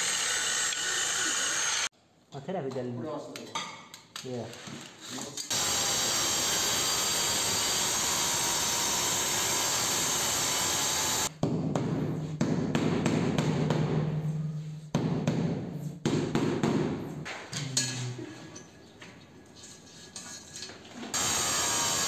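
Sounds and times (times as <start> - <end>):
angle grinder cutting tile: 0.0 - 1.9, 5.5 - 11.3, 21.2 - 22.0.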